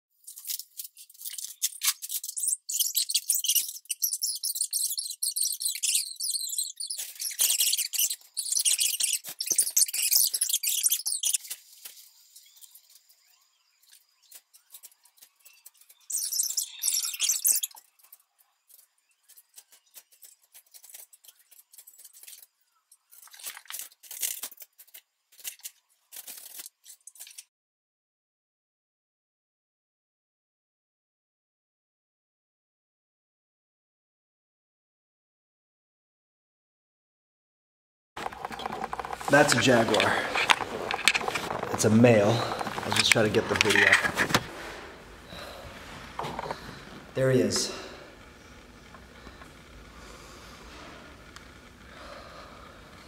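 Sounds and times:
bones clicking on wooden floor: 0:38.2 - 0:44.5
wrappings crinkling and rustling: 0:38.2 - 0:46.8.

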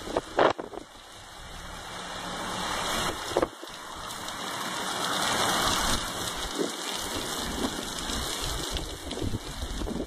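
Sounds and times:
driving rain: 0:00.0 - 0:10.0
hurricane wind gusting: 0:00.0 - 0:10.0.

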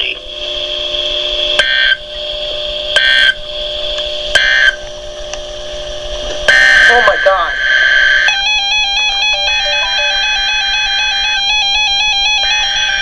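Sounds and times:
shrill electronic data bursts: 0:06.5 - 0:13.0
steady alert tone: 0:08.4 - 0:11.4.

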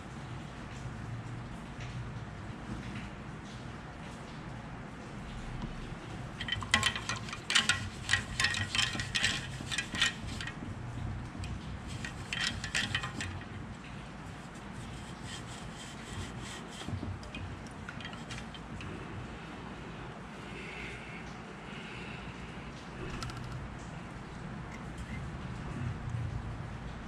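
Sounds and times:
small hard objects clinking: 0:06.4 - 0:10.6.

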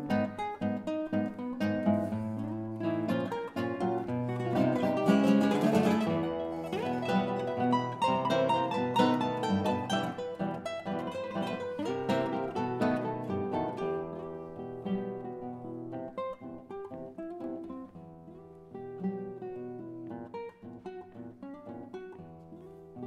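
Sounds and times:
classical guitars playing a tango: 0:00.0 - 0:23.0.

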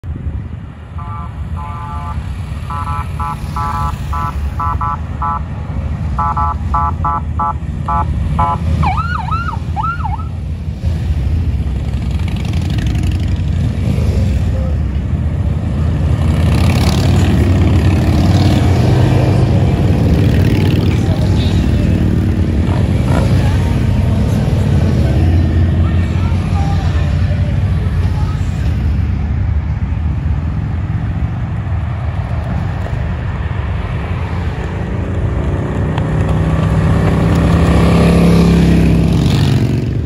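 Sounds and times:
motorcycle engines rumbling: 0:00.0 - 0:40.0
police siren blasts and whoops: 0:06.2 - 0:10.3.

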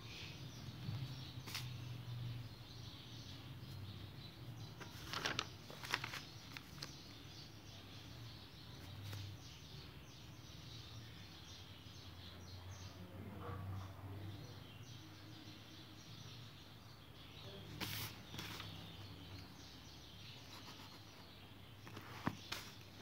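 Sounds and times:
paper rustling and clicks: 0:04.8 - 0:07.1, 0:17.8 - 0:18.9, 0:21.8 - 0:23.0.

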